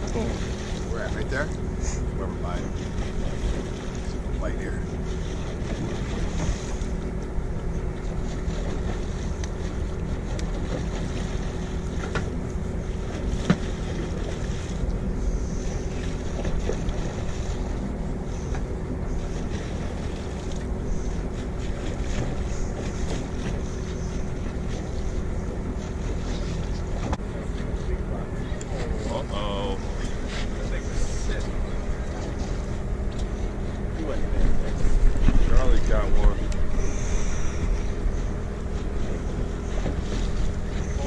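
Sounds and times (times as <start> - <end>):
boat engine rumble and hum: 0.0 - 41.0.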